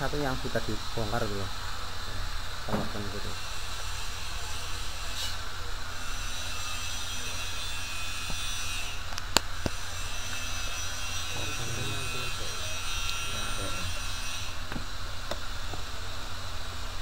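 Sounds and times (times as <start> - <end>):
low mechanical hum: 0.0 - 17.0.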